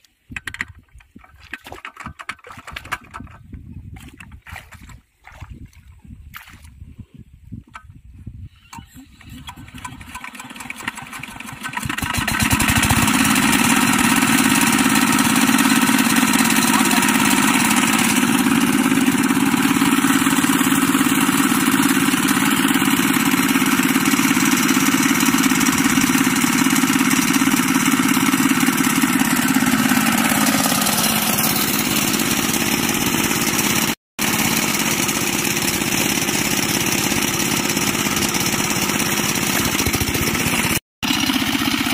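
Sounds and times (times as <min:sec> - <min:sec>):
diesel tractor engine running: 0:09.0 - 0:41.9.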